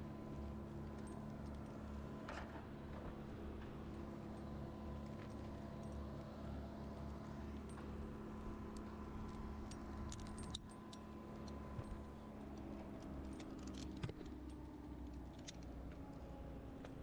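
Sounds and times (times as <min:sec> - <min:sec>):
metal climbing hardware clinking: 0:09.3 - 0:15.7.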